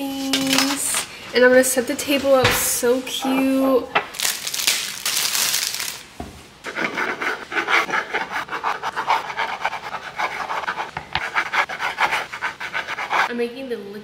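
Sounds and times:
plastic bag crinkling: 4.1s - 6.1s
knife sawing through bread: 6.7s - 13.3s.

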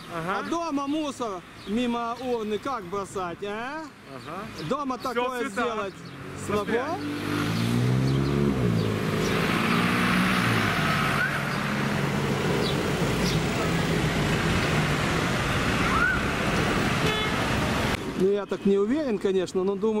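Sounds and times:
road traffic: 0.0s - 20.0s
car passing close: 5.5s - 18.0s.

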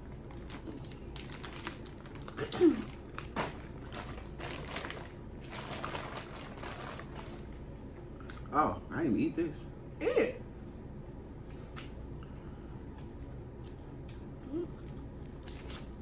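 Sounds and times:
plastic bags rustling: 0.3s - 7.6s.

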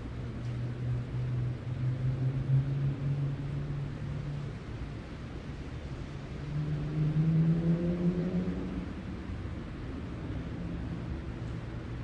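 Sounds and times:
vehicle engine hum accelerating: 0.0s - 12.0s.

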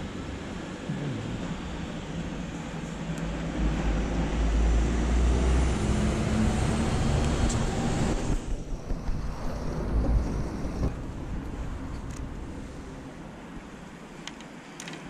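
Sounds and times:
traffic hiss: 0.0s - 5.7s
lorry engine rumble: 0.0s - 15.0s.

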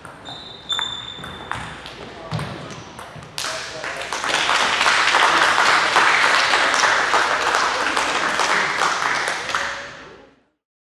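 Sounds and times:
audience applauding: 3.8s - 9.9s.

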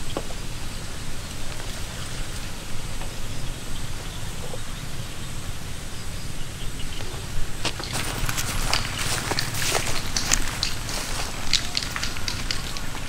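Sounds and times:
outdoor hiss: 0.0s - 13.0s
wind rumbling on microphone: 0.0s - 13.0s
faint clicks: 7.0s - 13.0s.

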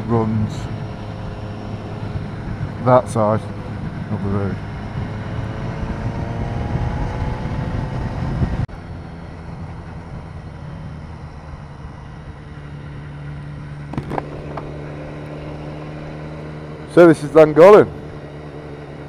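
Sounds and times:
motorcycle engine accelerating: 0.0s - 19.0s
wind noise on microphone: 1.9s - 8.7s.

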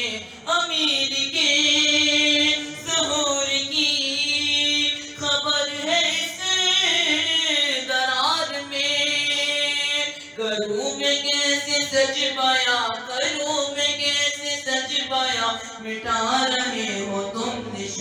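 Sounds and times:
boy singing unaccompanied: 0.0s - 18.0s.

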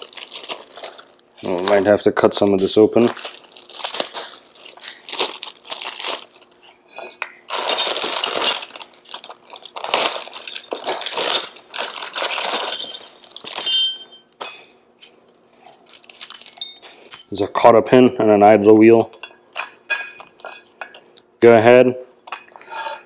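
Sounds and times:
plastic bag crinkling: 0.0s - 6.6s, 7.5s - 12.9s
metal parts clinking on concrete: 7.6s - 17.6s.

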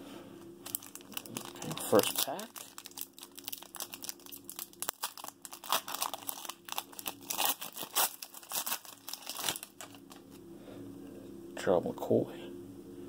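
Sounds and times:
foil wrapper tearing and crinkling: 0.6s - 10.3s.

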